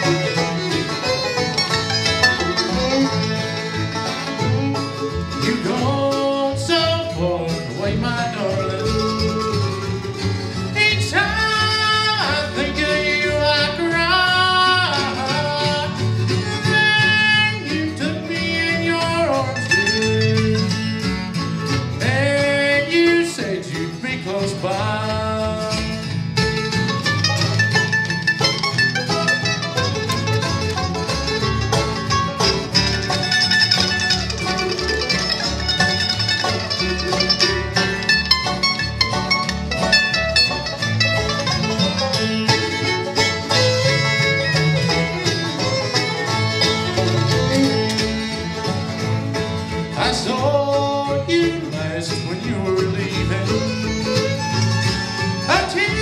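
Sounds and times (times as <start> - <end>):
bluegrass band playing: 0.0 - 56.0
fast banjo picking: 0.0 - 56.0
person singing: 5.4 - 9.9, 10.7 - 20.8, 49.9 - 53.9.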